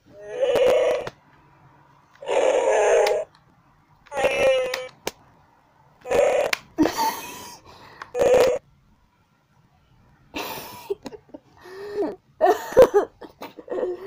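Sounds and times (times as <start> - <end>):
electronic growls from mask speaker: 0.1 - 1.2, 2.2 - 3.3, 4.1 - 5.0, 6.0 - 6.6, 8.1 - 8.6.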